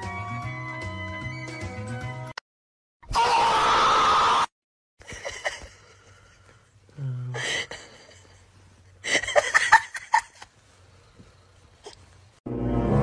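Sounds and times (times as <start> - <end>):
person giggling: 5.0 - 6.6, 7.3 - 10.5
person groaning: 7.0 - 7.5.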